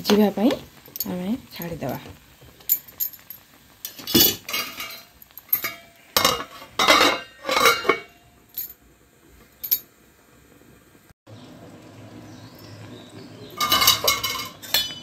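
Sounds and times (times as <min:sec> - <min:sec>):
metal lid clanking on pan: 0:03.8 - 0:08.2, 0:13.5 - 0:15.0.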